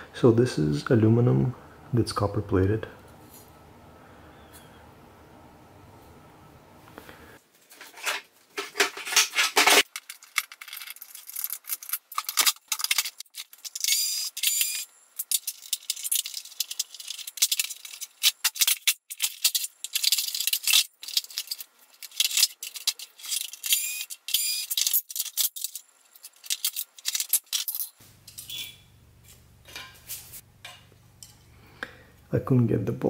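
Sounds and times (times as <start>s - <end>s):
plastic parts clicking and rattling: 7.7s - 28.5s.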